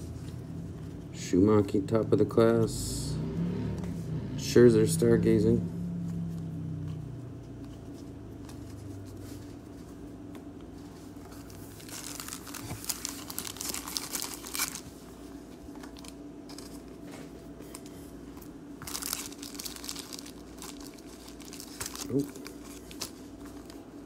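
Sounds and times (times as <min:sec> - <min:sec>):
faint steady hum: 0:00.0 - 0:24.0
plastic pack crinkling: 0:11.4 - 0:14.9, 0:18.8 - 0:23.8.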